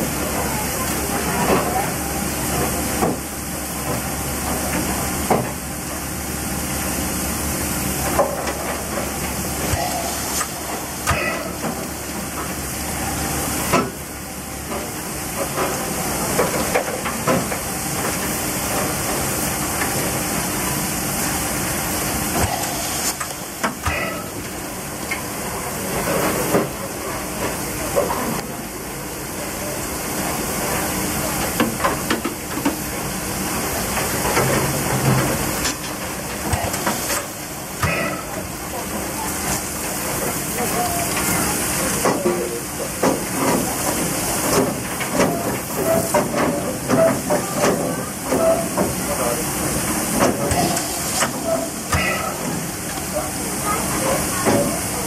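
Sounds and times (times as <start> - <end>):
steam hissing: 0.0 - 55.0
water spraying: 14.9 - 26.9, 32.8 - 55.0.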